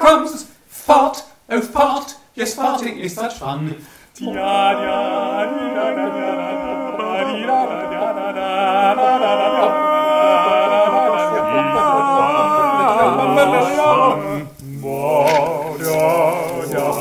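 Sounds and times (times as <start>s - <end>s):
male voices singing in harmony: 4.2s - 17.0s.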